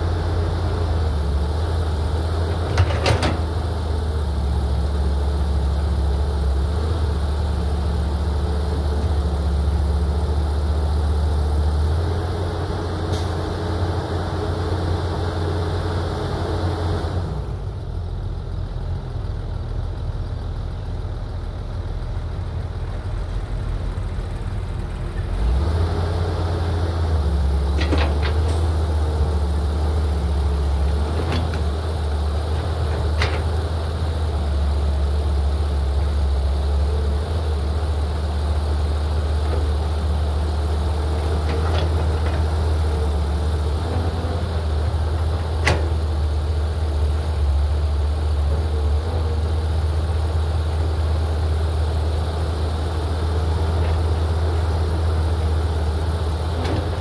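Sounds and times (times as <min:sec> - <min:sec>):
excavator diesel engine droning: 0:00.0 - 0:57.0.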